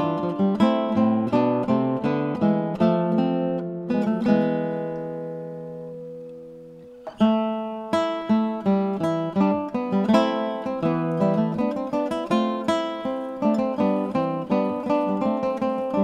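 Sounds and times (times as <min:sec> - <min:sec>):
acoustic guitar music: 0:00.0 - 0:16.0.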